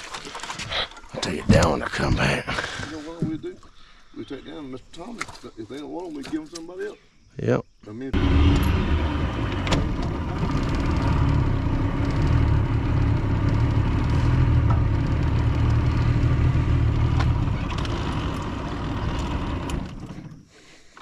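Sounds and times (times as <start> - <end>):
outboard motor running: 8.2 - 20.5.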